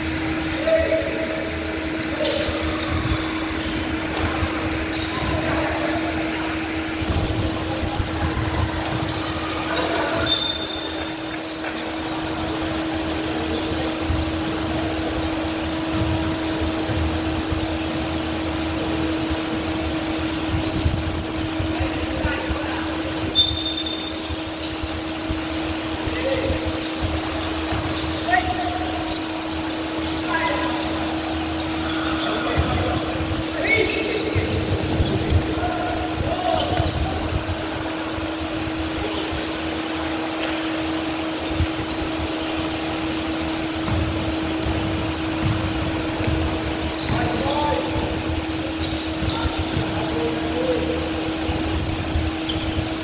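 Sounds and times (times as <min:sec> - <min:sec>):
steady mechanical hum: 0:00.0 - 0:53.0
sneakers squeaking on wooden floor: 0:01.4 - 0:53.0
high squeak: 0:07.0 - 0:12.0
basketball thuds: 0:43.8 - 0:47.2.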